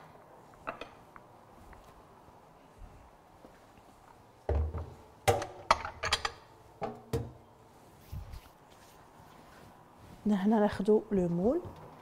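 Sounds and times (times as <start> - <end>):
pans knocking and clanking: 4.5 - 7.4.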